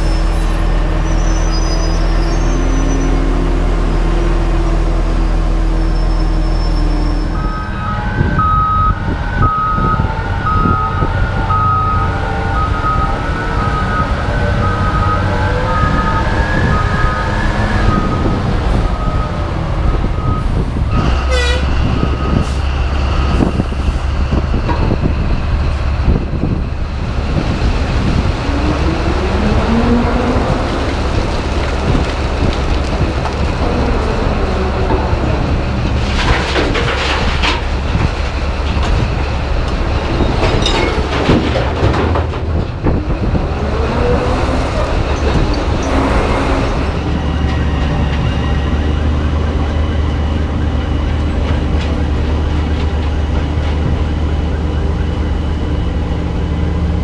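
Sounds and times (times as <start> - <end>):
diesel engine deep drone: 0.0 - 57.0
clanking and rattling: 30.4 - 43.8.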